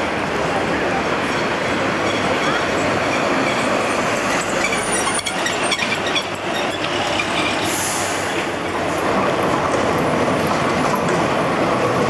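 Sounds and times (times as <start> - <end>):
tram wheels rumbling on rails: 0.0 - 12.0
wheel clicks and squeals: 2.0 - 7.7.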